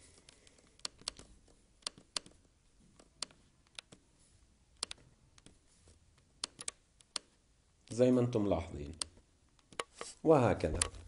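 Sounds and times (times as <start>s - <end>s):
computer mouse clicks: 0.2s - 2.4s, 3.0s - 4.0s, 4.8s - 5.6s, 6.4s - 7.4s, 8.9s - 11.0s.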